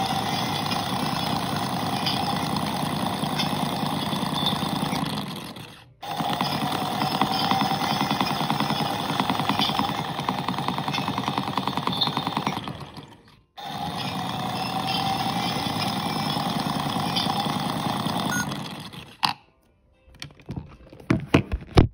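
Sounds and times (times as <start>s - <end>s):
small motor buzzing rattle: 0.0s - 19.2s.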